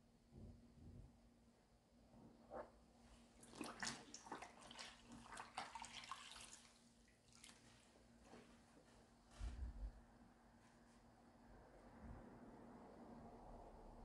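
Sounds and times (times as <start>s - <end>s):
faint steady hum: 0.0s - 14.0s
water splashing and dripping: 3.5s - 7.8s.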